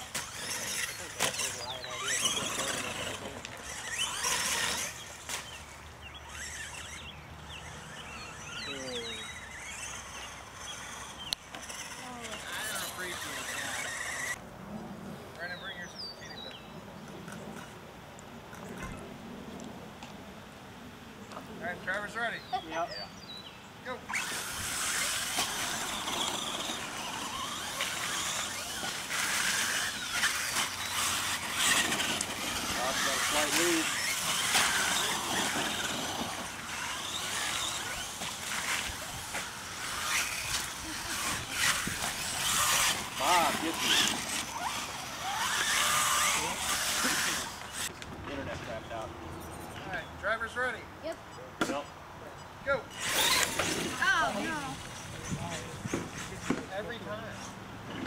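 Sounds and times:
toy truck motors revving: 0:00.0 - 0:14.4, 0:17.0 - 0:17.8, 0:18.5 - 0:19.0, 0:23.9 - 0:48.0, 0:52.4 - 0:58.0
tyres scrabbling on loose dirt: 0:00.0 - 0:14.4, 0:24.1 - 0:48.8, 0:53.0 - 0:58.0.

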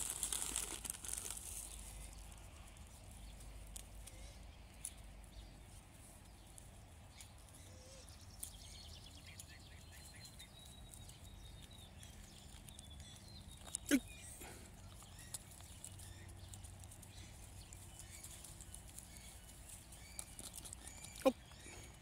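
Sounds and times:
rustling: 0:00.0 - 0:04.2, 0:13.5 - 0:22.0
faint outdoor background: 0:00.0 - 0:22.0.

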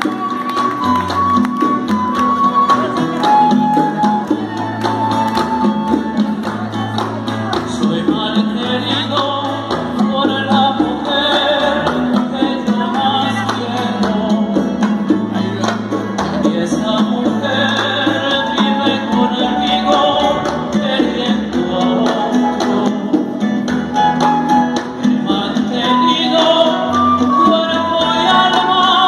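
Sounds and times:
hand percussion: 0:00.0 - 0:29.0
live latin band playing: 0:00.0 - 0:29.0
man singing through pa: 0:07.7 - 0:29.0.

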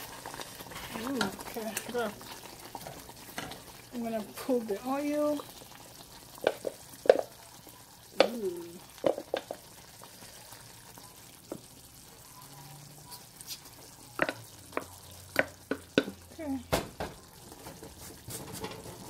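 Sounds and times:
wooden spoon scraping metal pot: 0:00.0 - 0:04.1, 0:17.4 - 0:19.0.

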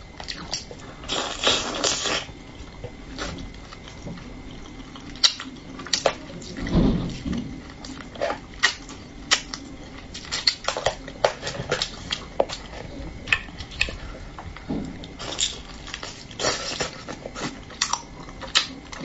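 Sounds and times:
person chewing: 0:00.2 - 0:19.0.

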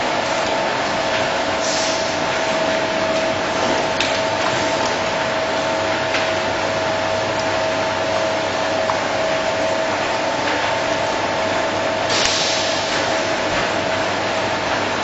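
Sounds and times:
machinery running with whine: 0:00.0 - 0:15.0.

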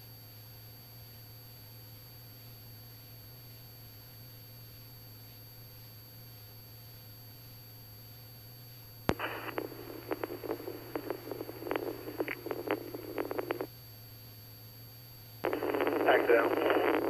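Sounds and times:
radio key click: 0:09.1 - 0:13.6
crackly garbled radio transmission: 0:09.1 - 0:13.7, 0:15.4 - 0:17.0
low hum: 0:09.1 - 0:13.7.

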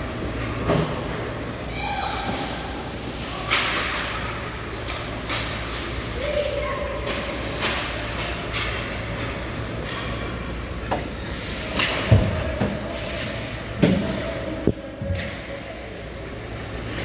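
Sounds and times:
sticks and puck hitting boards: 0:10.8 - 0:14.2.

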